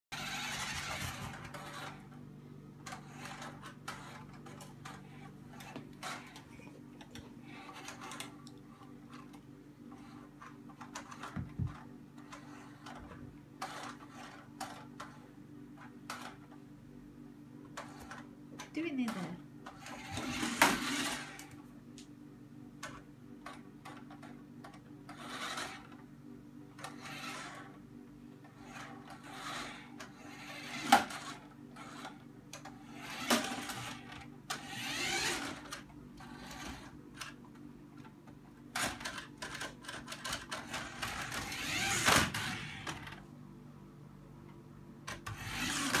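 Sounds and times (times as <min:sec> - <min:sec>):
toy car motor whirring: 0:00.1 - 0:02.0, 0:02.9 - 0:06.5, 0:07.4 - 0:08.4, 0:09.9 - 0:11.4, 0:12.2 - 0:15.2, 0:19.7 - 0:21.5, 0:25.1 - 0:26.0, 0:26.8 - 0:27.8, 0:28.5 - 0:37.4, 0:38.8 - 0:43.2, 0:45.2 - 0:46.0
steady low hum: 0:00.1 - 0:46.0.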